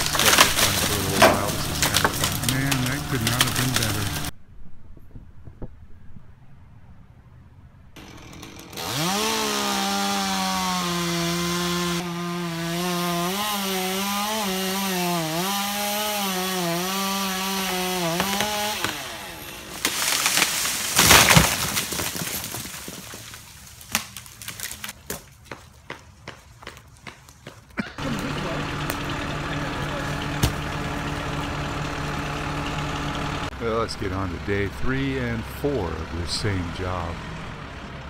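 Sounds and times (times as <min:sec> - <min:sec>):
chainsaw cutting wood: 0:00.0 - 0:04.3, 0:08.0 - 0:25.0, 0:28.0 - 0:33.5
debris cracking and thudding: 0:00.0 - 0:04.3, 0:18.0 - 0:25.2, 0:30.0 - 0:31.5
tree section crashing down: 0:00.0 - 0:04.3, 0:16.9 - 0:25.0, 0:28.0 - 0:33.5.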